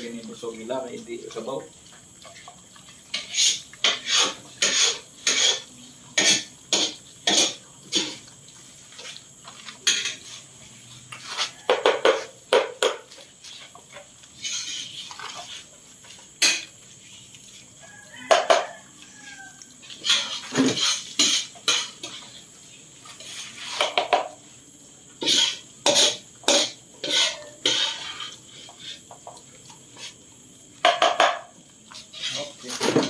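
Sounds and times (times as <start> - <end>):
metal spoon knocking on plastic bowls: 30.8 - 31.5.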